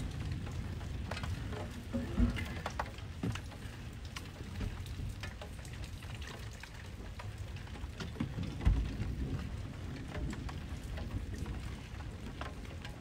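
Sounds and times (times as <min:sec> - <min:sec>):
rain falling: 0:00.0 - 0:13.0
raindrops ticking on surfaces: 0:00.0 - 0:13.0.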